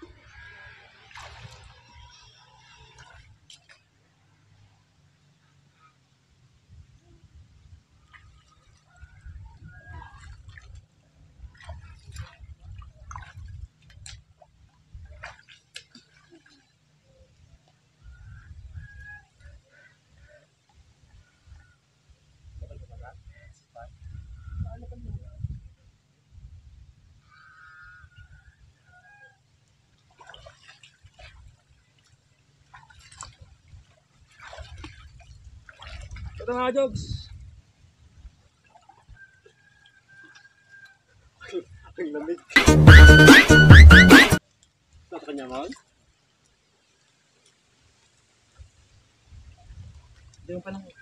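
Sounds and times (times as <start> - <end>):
water splashing and dripping: 0.0 - 4.5, 7.8 - 17.0, 29.6 - 37.4, 38.4 - 43.6, 44.4 - 51.0.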